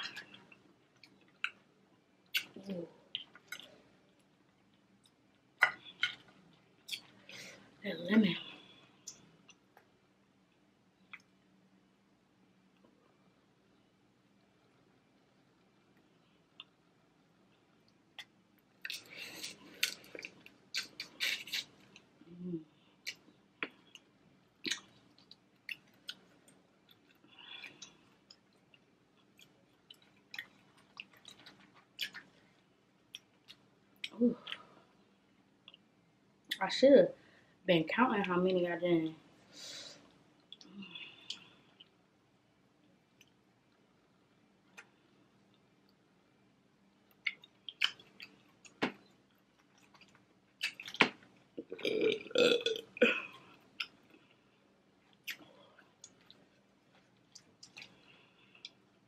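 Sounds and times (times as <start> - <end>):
chewing: 23.0 - 32.4, 47.1 - 52.9
long burp: 51.7 - 53.4.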